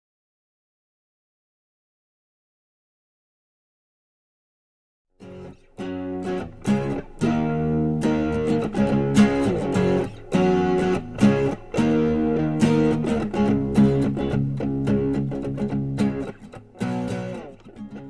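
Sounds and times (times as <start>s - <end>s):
guitar strumming chords: 5.2s - 18.0s.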